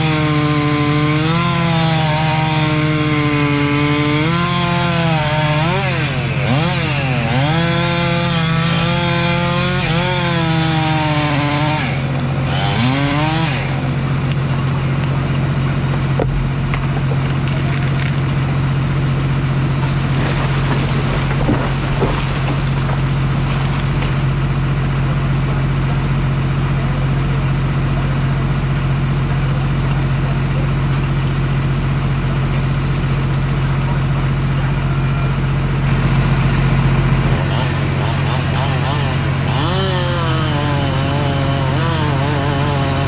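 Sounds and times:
diesel engine idling: 0:13.8 - 0:39.6.

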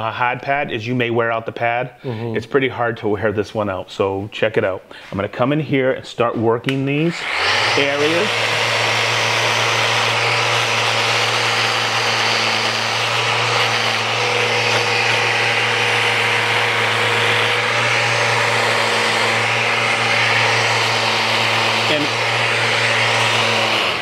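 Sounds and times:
sander on wood: 0:07.0 - 0:24.0
dust extractor running: 0:07.1 - 0:24.0.

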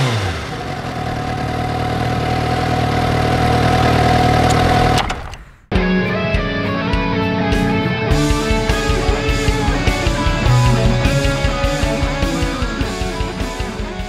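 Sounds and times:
rock guitar: 0:00.0 - 0:14.0
fast drum beat: 0:08.2 - 0:14.0.

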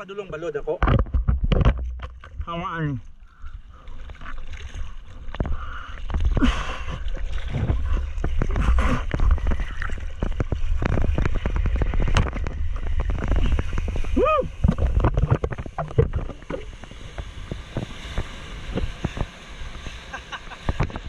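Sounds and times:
seawater splashing and rushing: 0:03.6 - 0:21.0
low rumble of wave: 0:06.1 - 0:21.0.

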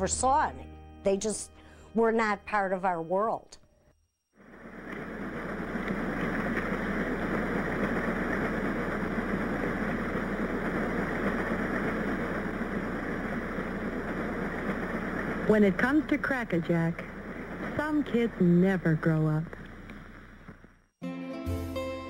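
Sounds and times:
vehicle ride rumble: 0:04.4 - 0:21.0.

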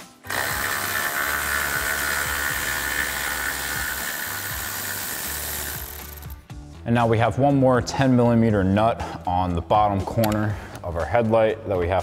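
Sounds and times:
electric ratchet running: 0:00.1 - 0:06.5.

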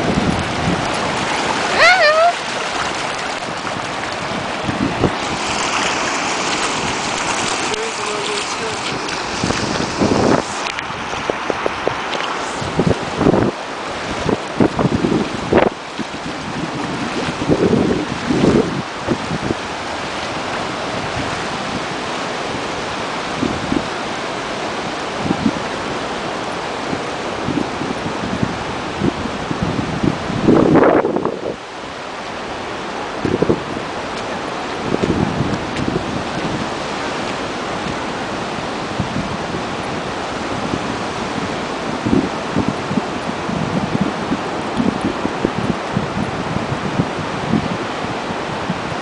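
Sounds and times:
shallow sea water: 0:00.0 - 0:49.0
surf rushing: 0:00.0 - 0:49.0
wind: 0:00.0 - 0:49.0
dog splashing through water: 0:00.2 - 0:10.8.

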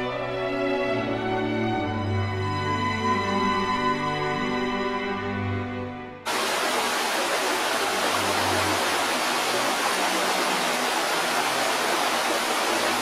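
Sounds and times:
whitewater rushing: 0:06.3 - 0:13.0.

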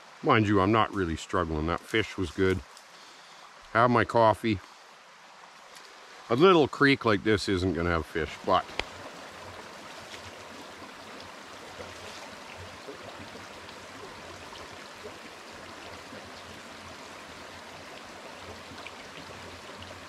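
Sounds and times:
creek rushing over stones: 0:00.0 - 0:20.0.

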